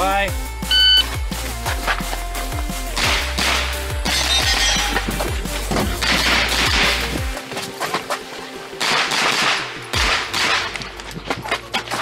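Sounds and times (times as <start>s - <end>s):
electronic background music: 0.0s - 12.0s
carbine gunshots: 8.8s - 10.9s.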